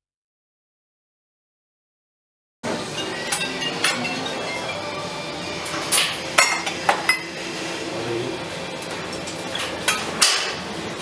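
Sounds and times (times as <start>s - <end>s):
mugs and crockery clinking: 2.9s - 5.0s, 5.8s - 7.4s.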